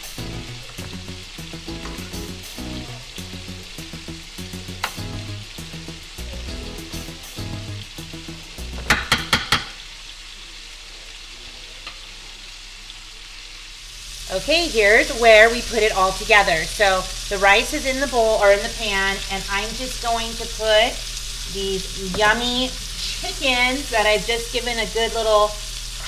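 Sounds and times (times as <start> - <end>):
soft background music: 0.0 - 9.3
chicken sizzling in a frying pan: 0.0 - 26.0.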